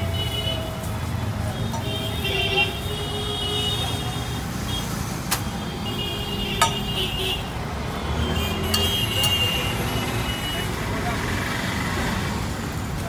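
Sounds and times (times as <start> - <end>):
metal spatula clinking on griddle: 6.6 - 6.9, 8.7 - 9.4.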